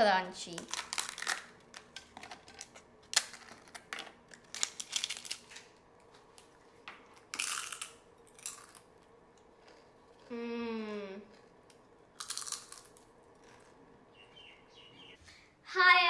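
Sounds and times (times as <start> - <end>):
crisp wafers snapping and crunching: 0.5 - 5.7, 7.2 - 10.3, 11.3 - 13.8.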